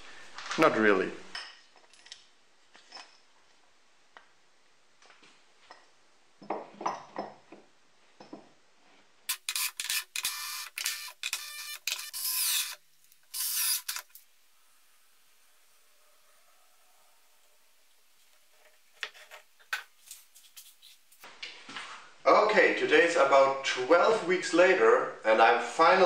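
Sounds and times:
glue bottle squirting bursts: 0:09.3 - 0:14.2.

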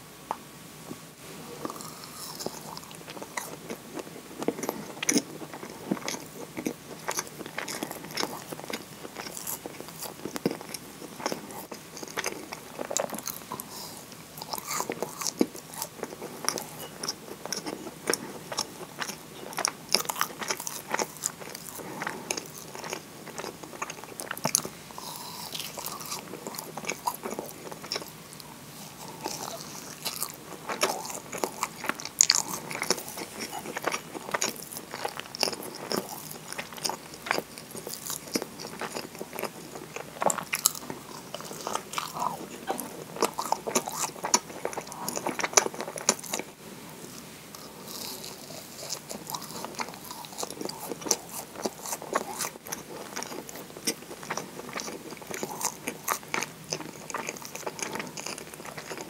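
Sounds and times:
biting and chewing: 0:01.5 - 0:59.0.

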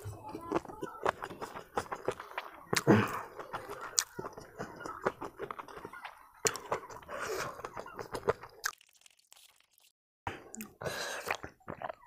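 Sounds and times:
person chewing: 0:00.0 - 0:12.0
wet clicks and smacks: 0:00.5 - 0:06.9.

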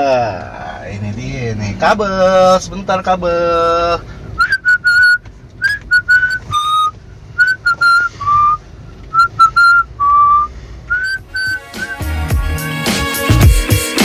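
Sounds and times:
person whistling a tune: 0:04.4 - 0:12.1.

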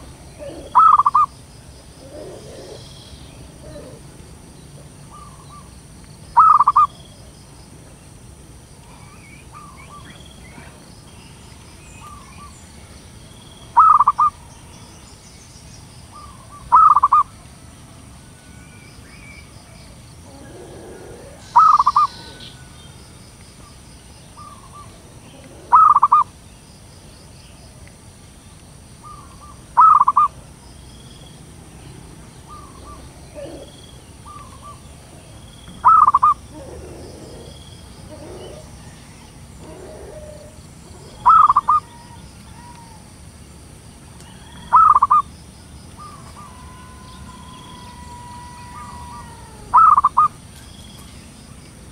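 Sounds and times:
dove cooing: 0:00.0 - 0:01.3, 0:01.9 - 0:05.7, 0:06.4 - 0:06.9, 0:13.8 - 0:14.4, 0:16.2 - 0:17.3, 0:20.2 - 0:22.7, 0:24.4 - 0:26.3, 0:29.0 - 0:30.3, 0:32.4 - 0:43.1, 0:44.4 - 0:45.2, 0:46.0 - 0:50.4.

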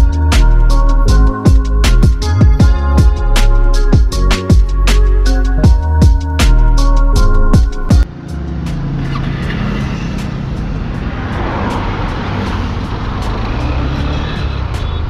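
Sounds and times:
music track: 0:00.0 - 0:15.0
wind and road noise: 0:07.9 - 0:15.0
motorcycle engine cruising: 0:08.0 - 0:15.0.

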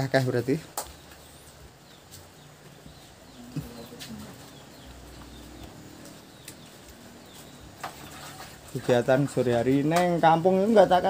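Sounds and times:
faint low bird calls: 0:00.8 - 0:09.1.

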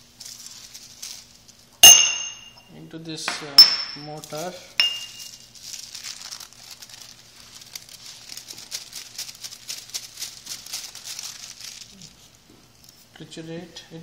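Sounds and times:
paper crinkling and rustling: 0:00.0 - 0:01.7, 0:04.2 - 0:04.6, 0:05.2 - 0:13.1.

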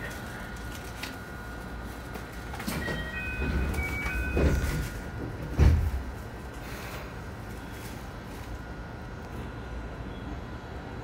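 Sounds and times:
low train hum: 0:00.0 - 0:11.0
electronic door chime: 0:02.7 - 0:05.0
sliding doors thudding shut: 0:02.7 - 0:06.2.

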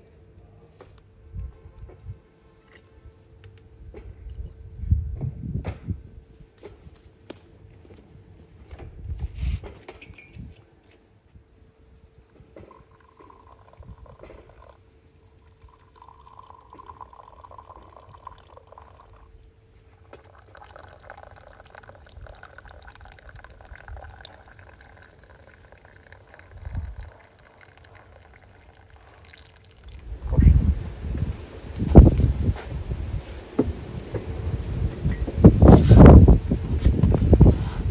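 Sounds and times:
light clinks and knocks: 0:09.7 - 0:10.6
faint liquid sounds: 0:11.9 - 0:32.3.

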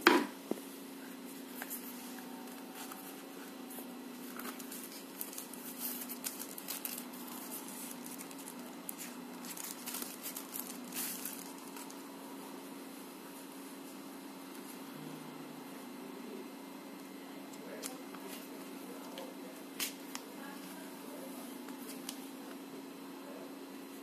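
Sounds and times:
steady low hum: 0:00.0 - 0:24.0
plastic packaging crinkling: 0:04.1 - 0:12.1.

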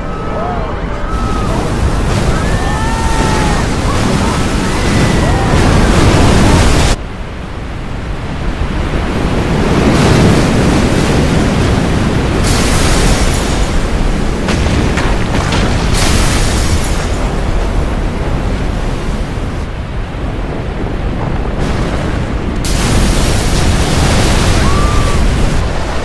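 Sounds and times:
heavy surging surf: 0:00.0 - 0:26.0
crashing water: 0:01.1 - 0:07.0, 0:08.5 - 0:26.0
hissing spray: 0:12.4 - 0:14.2, 0:22.6 - 0:25.6.

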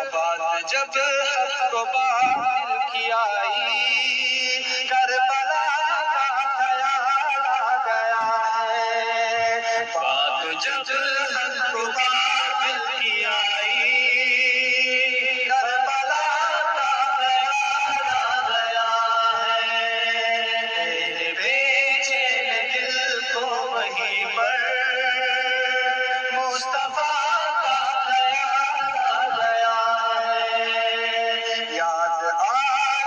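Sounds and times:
man singing religious song: 0:00.0 - 0:33.0.

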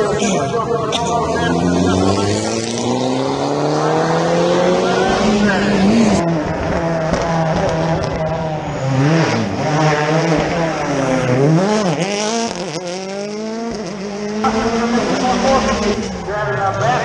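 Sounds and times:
rally car engine driven hard: 0:00.0 - 0:17.0.

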